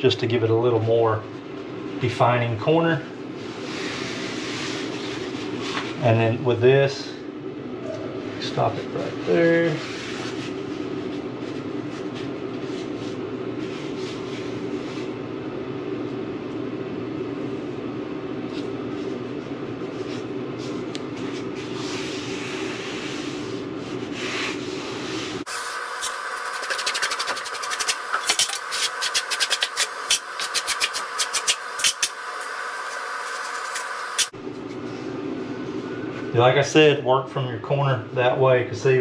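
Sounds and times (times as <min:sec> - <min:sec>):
steady hum: 0:00.0 - 0:39.0
hands rubbing membrane: 0:26.3 - 0:32.1
quick scratchy rubbing: 0:26.3 - 0:32.2.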